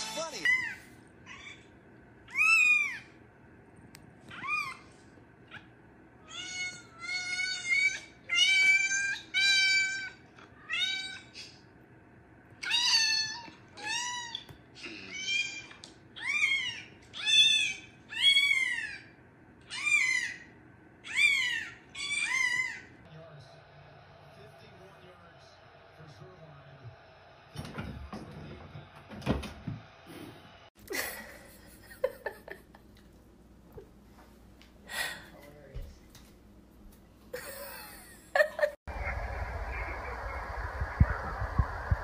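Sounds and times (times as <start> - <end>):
cat meowing: 2.3 - 3.1, 4.3 - 4.8, 6.2 - 11.4, 12.6 - 19.0.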